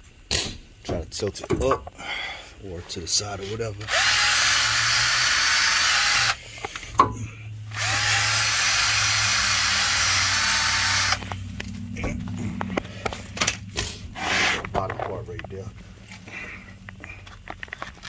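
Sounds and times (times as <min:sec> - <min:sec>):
drill with wire wheel brush scrubbing: 0:03.8 - 0:06.4, 0:07.7 - 0:11.2, 0:14.2 - 0:14.7.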